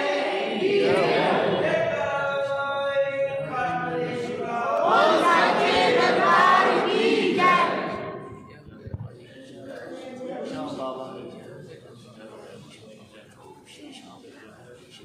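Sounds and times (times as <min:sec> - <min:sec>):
voices chanting together: 0:00.0 - 0:08.3.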